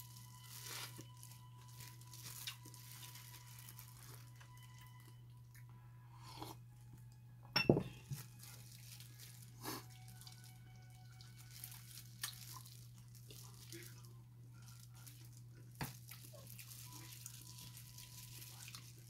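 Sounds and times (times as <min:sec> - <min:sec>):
plastic glove rustling: 0:00.0 - 0:05.2, 0:08.0 - 0:19.0
sharp ringing knock: 0:07.6 - 0:08.0.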